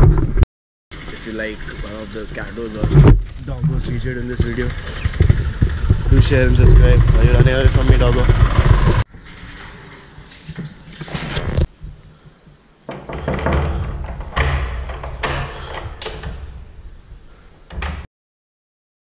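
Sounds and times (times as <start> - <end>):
door knocks and thuds: 4.4 - 9.0, 12.9 - 16.8
metal gate latch clicking and rattling: 12.9 - 16.7.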